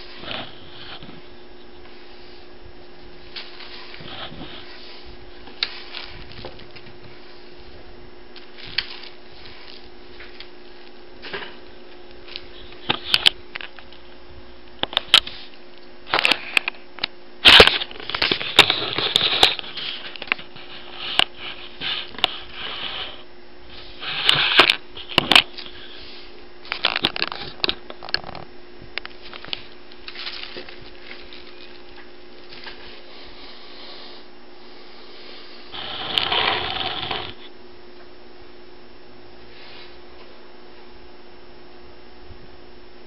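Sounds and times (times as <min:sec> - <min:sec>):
faint steady hum: 0:00.0 - 0:43.0
paper rustling and crinkling: 0:03.1 - 0:07.6, 0:08.4 - 0:11.6, 0:29.1 - 0:33.4.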